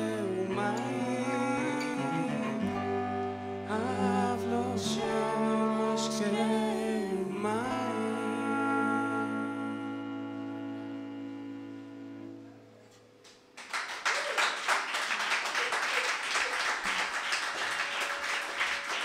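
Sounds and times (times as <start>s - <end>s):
audience applause: 13.6s - 19.0s.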